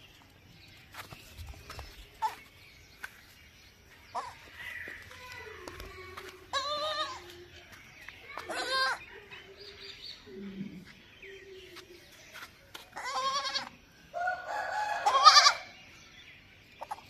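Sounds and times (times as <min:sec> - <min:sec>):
baby goat bleating: 0:05.4 - 0:07.3, 0:08.4 - 0:09.0, 0:13.0 - 0:13.7, 0:15.0 - 0:15.6.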